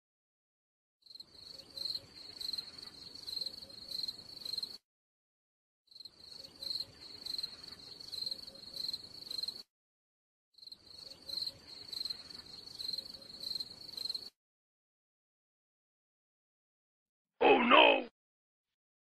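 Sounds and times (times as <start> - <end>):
insects chirping: 1.1 - 4.8, 5.9 - 9.6, 10.6 - 14.3.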